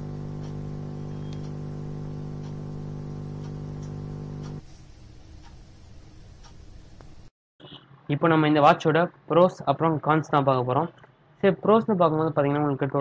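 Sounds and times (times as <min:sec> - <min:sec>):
low hum with overtones: 0:00.0 - 0:06.2
faint ticks: 0:00.1 - 0:04.6.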